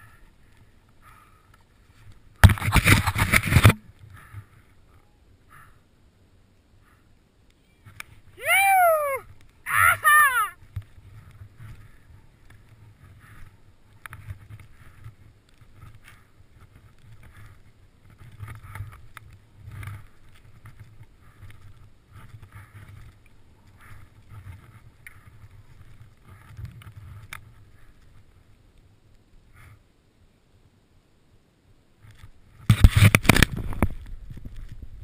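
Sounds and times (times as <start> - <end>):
person shouting: 8.4 - 10.6.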